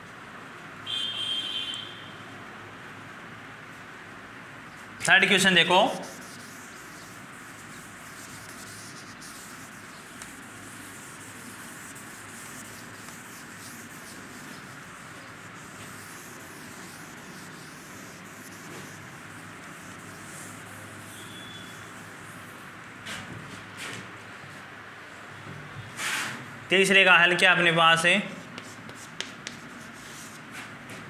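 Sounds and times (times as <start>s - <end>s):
steady background hiss: 0.0s - 23.1s
duster rubbing on blackboard: 5.2s - 22.6s, 28.4s - 30.7s.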